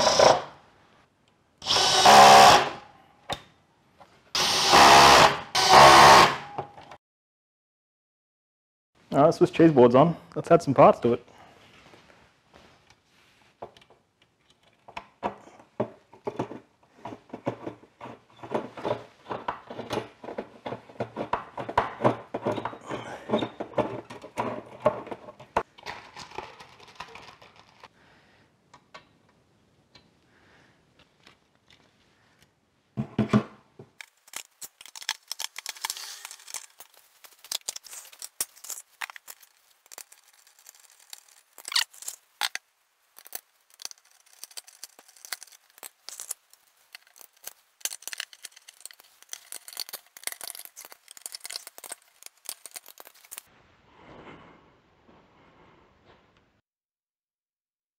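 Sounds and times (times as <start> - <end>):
screwdriver and parts clicking: 34.0 - 42.6, 43.2 - 53.5
high crisp crinkling: 34.0 - 53.5.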